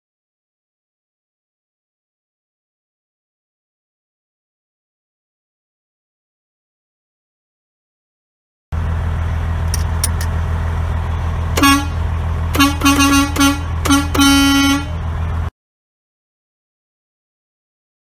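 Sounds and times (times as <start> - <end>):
diesel engine rumble: 8.7 - 15.5
truck air horn blasts: 11.6 - 15.2.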